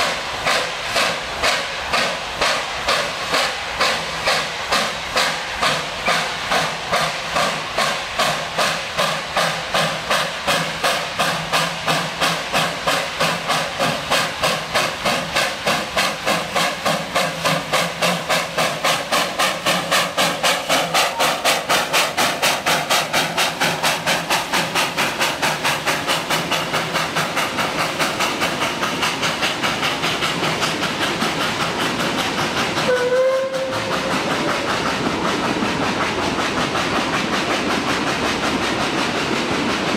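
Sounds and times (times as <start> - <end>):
steam hiss: 0.0 - 39.9
steam locomotive exhaust chuffs: 0.0 - 39.9
train whistle: 32.8 - 34.1.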